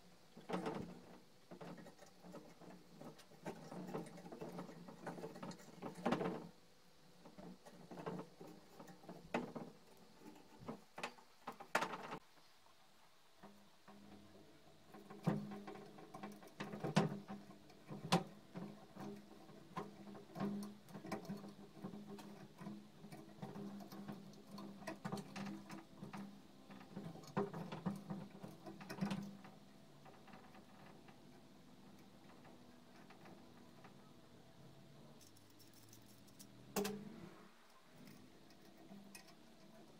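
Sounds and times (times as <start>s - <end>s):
wire clicking and scraping: 13.4s - 34.2s, 34.9s - 39.9s
metal and cable clicks and taps: 35.2s - 37.1s, 38.0s - 39.9s.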